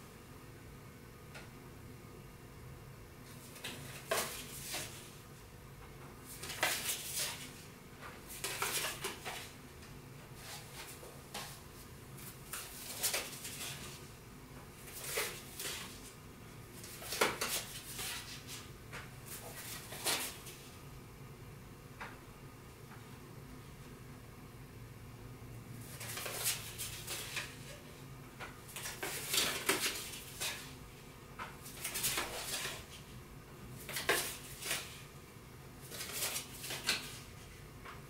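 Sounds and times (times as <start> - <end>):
playing cards scraping and tapping: 6.4 - 7.6, 8.4 - 9.5, 16.8 - 20.5, 25.9 - 27.8, 28.4 - 30.6, 31.7 - 33.0, 33.8 - 35.0, 35.9 - 37.2.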